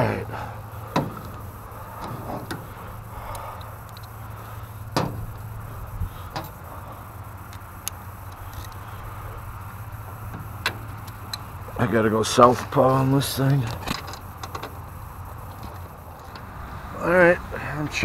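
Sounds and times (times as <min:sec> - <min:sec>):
steady low hum: 0:00.0 - 0:18.0
sharp clicks and knocks: 0:00.9 - 0:04.2, 0:04.9 - 0:05.5, 0:10.2 - 0:11.5, 0:13.7 - 0:14.8.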